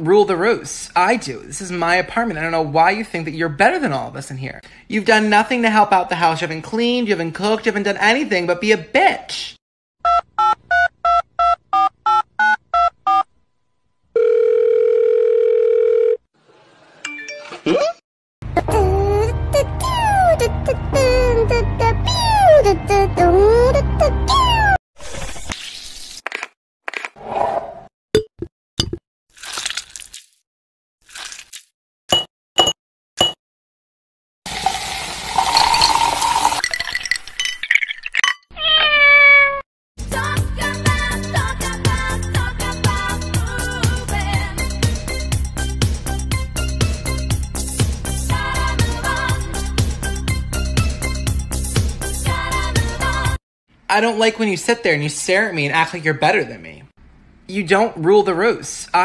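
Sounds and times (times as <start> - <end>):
telephone ringing tone: 14.1 - 16.3
fizzy drink poured and hissing: 34.5 - 37.9
ice clinking against glass: 34.6 - 38.5
cat meowing: 38.6 - 39.6.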